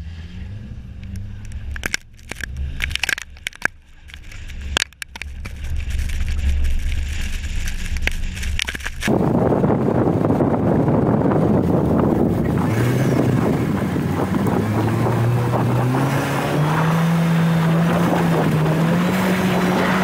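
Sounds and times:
car engine and road rumble: 0.0 - 20.0
snow and ice crunching and crackling: 1.6 - 9.5
wind noise on microphone: 4.3 - 20.0.

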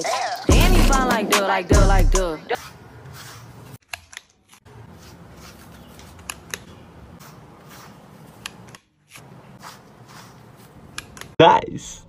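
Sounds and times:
brush scratching through cat fur: 2.5 - 3.8, 4.7 - 11.2.

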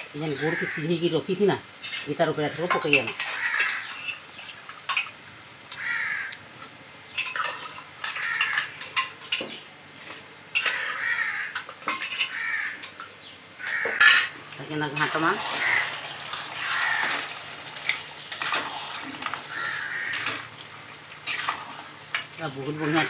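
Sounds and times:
crows cawing: 0.3 - 0.9, 3.2 - 4.2, 5.7 - 6.4, 8.0 - 8.8, 10.6 - 12.9, 13.6 - 14.3, 15.5 - 17.5, 19.2 - 20.6
ladle clinking on metal pots: 7.2 - 9.6, 11.6 - 12.3, 13.9 - 14.4.

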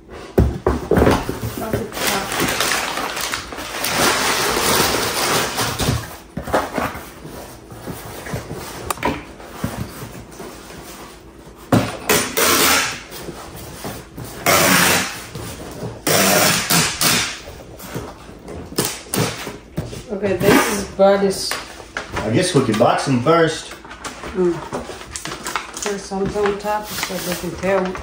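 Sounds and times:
paper rustling: 1.0 - 11.6, 23.7 - 28.0
packing tape pulled from tape gun: 12.1 - 13.1, 14.4 - 15.3, 16.0 - 17.4.

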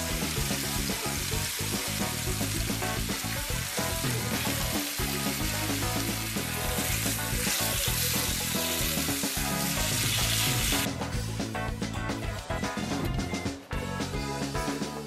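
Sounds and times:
meat sizzling in a frying pan: 0.0 - 10.9
background music: 0.0 - 15.0.

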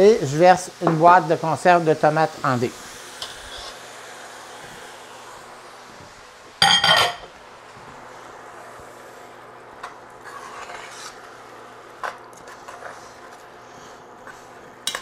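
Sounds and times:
metal spoon stirring in a pot: 10.2 - 11.3.

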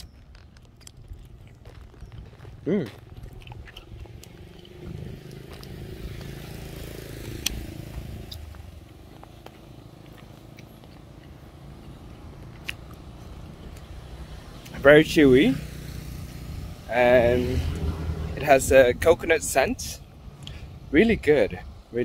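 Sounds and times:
vehicle engine passing: 2.5 - 19.3.

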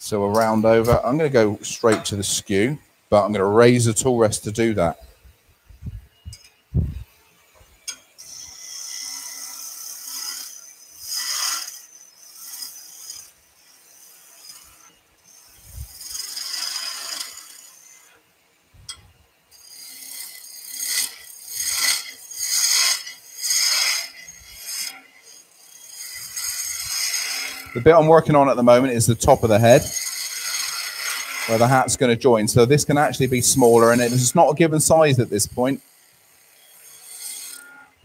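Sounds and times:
chisel rasping on spinning wood: 8.4 - 18.1, 19.6 - 37.9.

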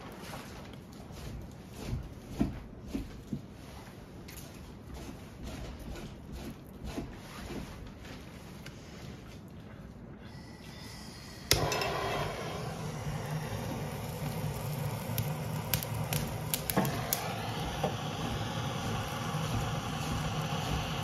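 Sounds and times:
torch flame blowing: 10.3 - 21.0
torch igniter click: 11.4 - 21.0.

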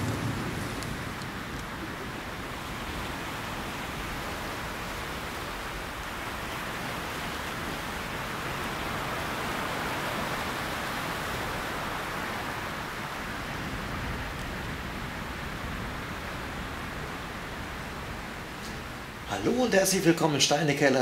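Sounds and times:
steady rushing noise: 0.0 - 20.8.

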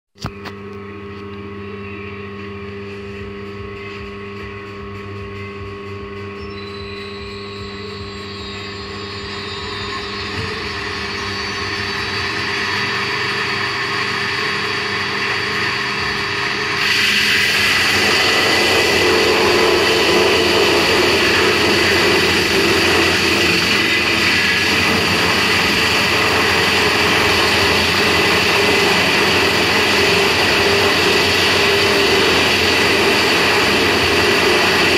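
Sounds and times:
band saw running: 2.2 - 34.9.

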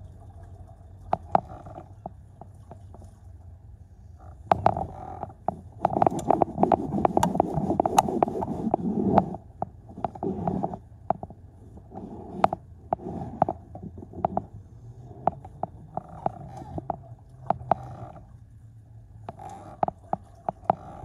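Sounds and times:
sharp clicks and knocks: 4.4 - 14.6, 15.2 - 18.2, 19.2 - 21.0.

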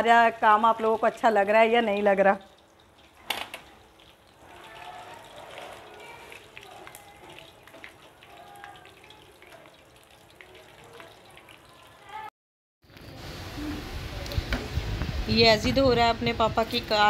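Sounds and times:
chicken deep-frying in oil: 0.0 - 17.0
crackles and pops of oil: 1.8 - 4.7.

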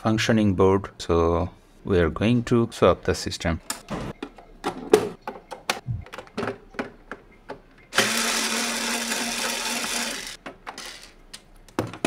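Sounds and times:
small power tool motor humming: 8.0 - 11.0.

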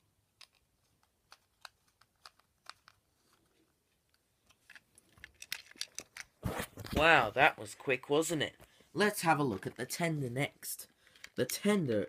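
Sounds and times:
plastic parts clicking: 0.3 - 6.4.

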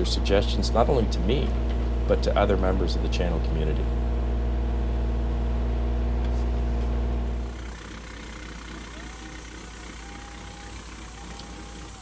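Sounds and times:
diesel engine running: 0.0 - 12.0
faint thin whine: 6.2 - 12.0.

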